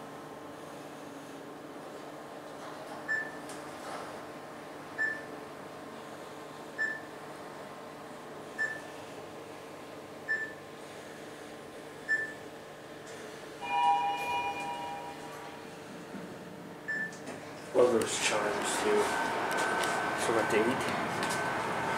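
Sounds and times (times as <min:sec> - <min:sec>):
elevator car hum: 0:11.8 - 0:21.9.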